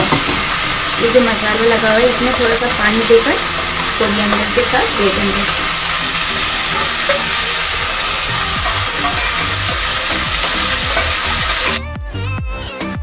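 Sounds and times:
music with thumping beat: 0.0s - 0.6s
vegetables sizzling in oil: 0.0s - 11.8s.

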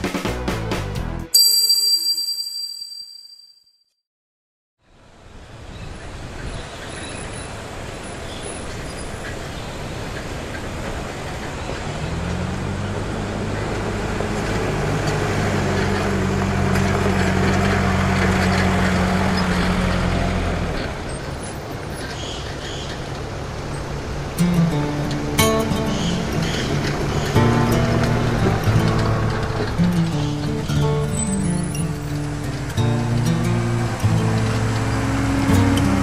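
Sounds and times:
tyres on gravel: 10.2s - 36.0s
car engine running: 10.7s - 36.0s.

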